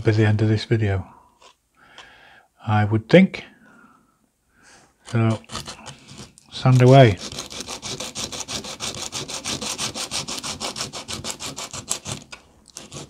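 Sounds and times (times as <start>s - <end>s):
wood sanding rasping strokes: 5.1s - 13.0s.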